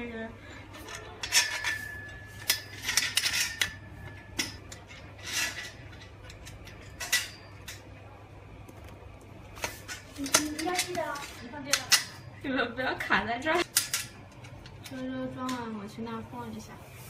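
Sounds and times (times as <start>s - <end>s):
metal tubes clinking: 0.4s - 7.9s, 9.6s - 12.5s, 13.6s - 15.7s
thin metallic ring: 0.7s - 7.8s.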